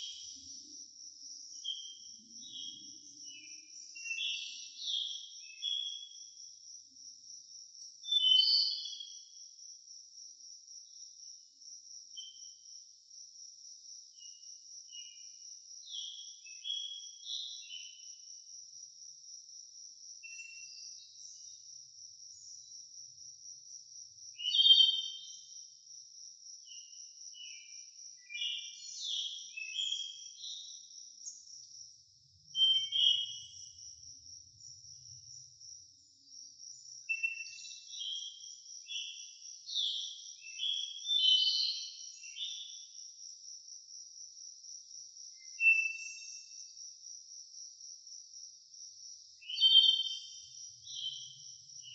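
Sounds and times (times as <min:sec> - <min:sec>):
crickets trilling: 0:00.0 - 0:51.9
birds chirping and whistling: 0:32.6 - 0:33.5, 0:39.8 - 0:42.6.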